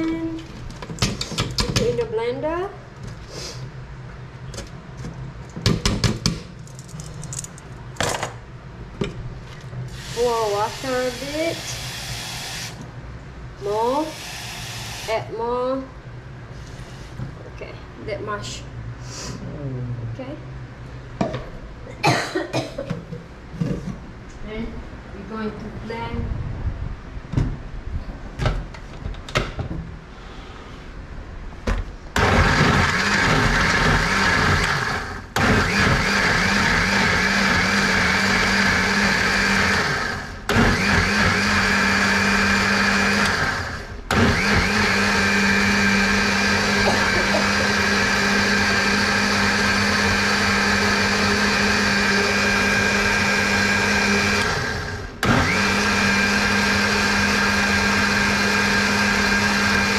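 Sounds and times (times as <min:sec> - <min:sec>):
blender motor running: 0:09.9 - 0:12.8, 0:13.7 - 0:15.2, 0:32.2 - 0:59.9.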